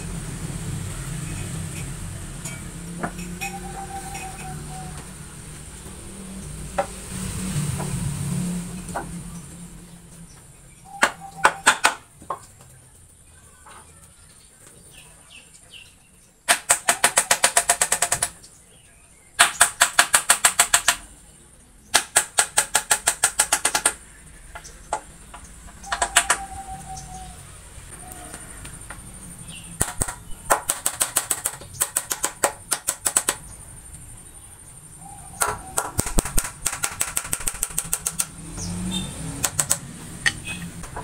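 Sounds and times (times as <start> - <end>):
woodworking tool clacking on wood: 16.5 - 18.4, 29.8 - 33.4, 35.4 - 38.3.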